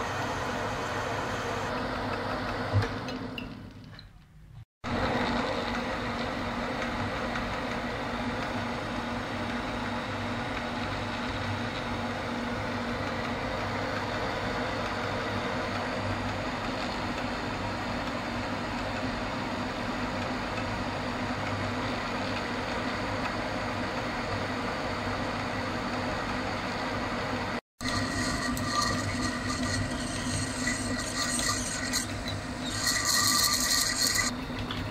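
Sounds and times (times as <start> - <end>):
lathe machine hum: 0.0 - 2.7, 4.9 - 34.7
high drill whine: 27.8 - 34.3.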